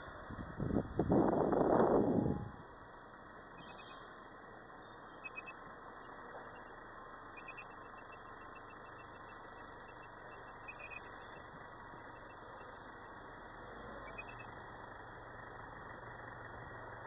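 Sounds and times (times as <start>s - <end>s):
car engine and road noise: 0.0s - 17.0s
rapid high-pitched peeping: 3.5s - 4.2s, 4.8s - 5.6s, 6.5s - 11.5s, 14.1s - 14.6s.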